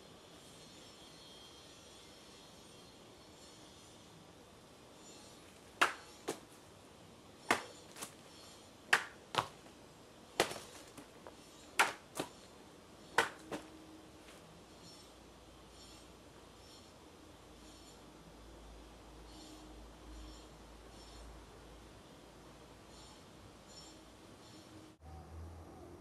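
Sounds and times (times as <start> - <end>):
sword strikes cracking: 5.8 - 6.4, 7.5 - 8.1, 11.8 - 12.3.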